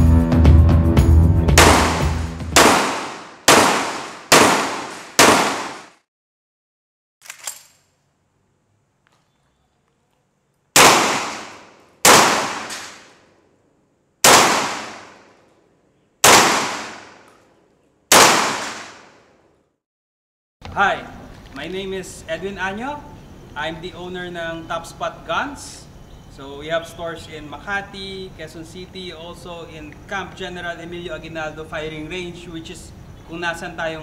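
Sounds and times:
shotgun shots with echo: 1.6 - 6.0, 10.8 - 13.1, 14.2 - 15.3, 16.2 - 17.3, 18.1 - 19.2.

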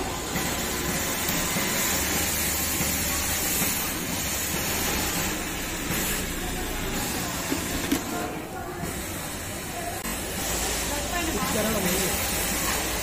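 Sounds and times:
factory machines din: 0.0 - 13.0
sewing machine running: 0.0 - 13.0.

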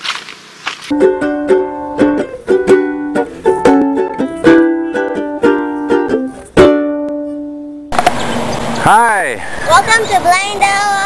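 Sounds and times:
plucked-string instrument strumming: 0.9 - 8.1.

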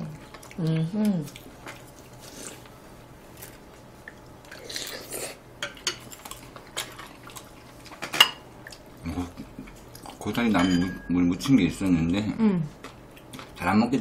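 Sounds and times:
cutlery clinking on ceramic bowls: 10.4 - 11.6.

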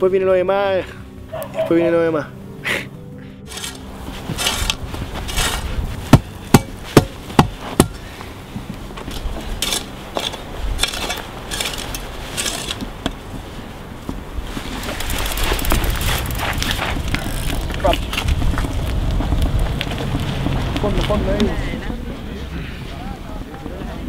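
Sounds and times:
shovel scraping dry dirt: 3.4 - 8.1, 8.9 - 13.2, 14.4 - 18.4
sharp knocks: 6.1 - 8.0.

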